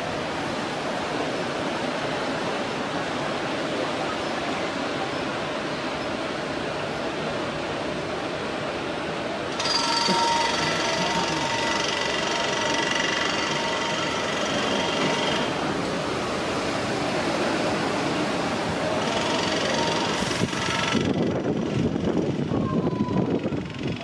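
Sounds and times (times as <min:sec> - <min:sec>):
train rumble: 0:00.0 - 0:24.0
high whining tones: 0:09.6 - 0:15.6.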